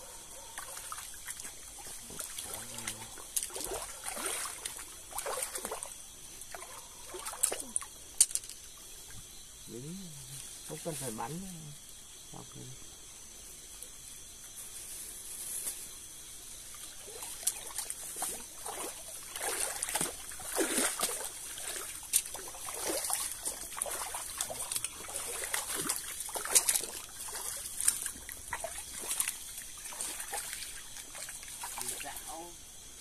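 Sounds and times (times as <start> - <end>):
high insect chirr: 0.0 - 33.0
footsteps splashing through stream: 0.6 - 7.8, 16.8 - 32.2.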